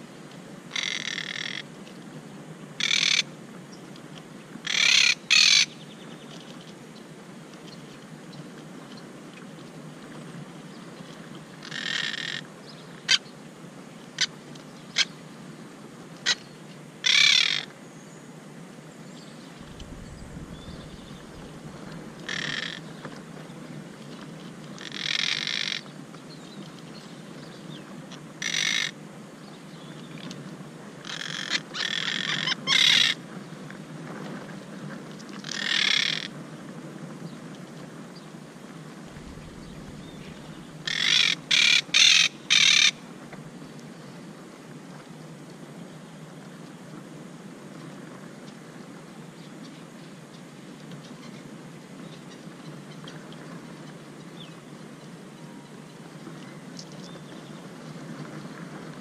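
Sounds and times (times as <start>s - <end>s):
parakeets squawking: 39.2s - 42.9s.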